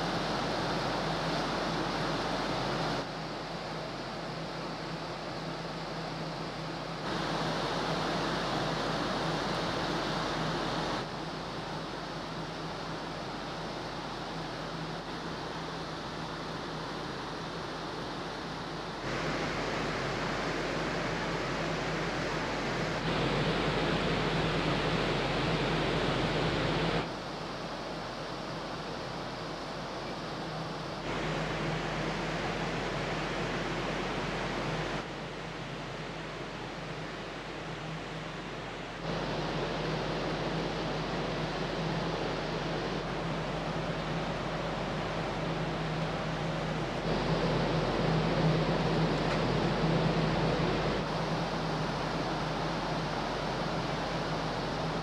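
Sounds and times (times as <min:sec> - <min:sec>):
low ship hum: 0:00.0 - 0:55.0
wind: 0:00.0 - 0:55.0.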